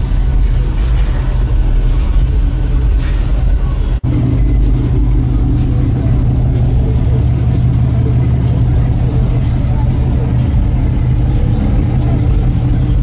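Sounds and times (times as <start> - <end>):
car engine rumbling: 0.0 - 13.0.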